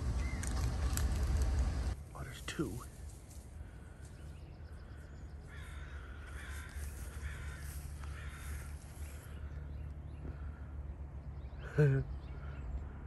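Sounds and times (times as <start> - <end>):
low steady rumble: 0.0 - 6.2
crows cawing: 4.8 - 10.8.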